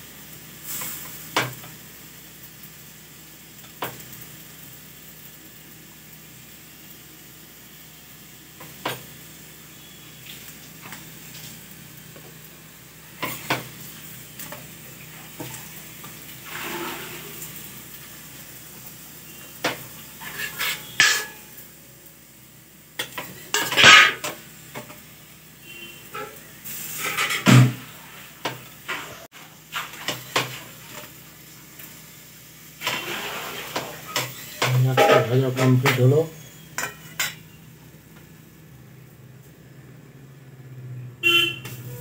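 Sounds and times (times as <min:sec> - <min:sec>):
faint sizzle: 0:00.0 - 0:42.0
spatula scraping on griddle: 0:13.2 - 0:18.0, 0:19.2 - 0:21.6, 0:23.0 - 0:25.0, 0:25.7 - 0:31.2, 0:32.8 - 0:37.6.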